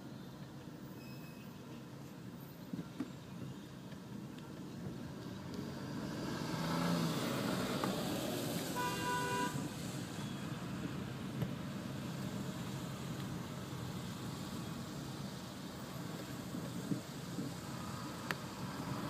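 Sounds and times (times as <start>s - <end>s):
road traffic from inside car: 0.0s - 19.0s
car horn: 8.8s - 9.7s.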